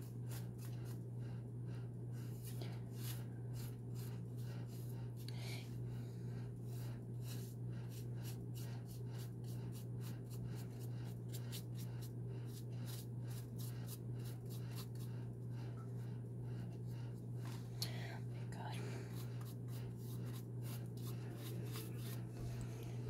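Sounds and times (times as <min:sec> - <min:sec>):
steady low hum: 0:00.0 - 0:23.0
paintbrush swishes: 0:19.4 - 0:22.4.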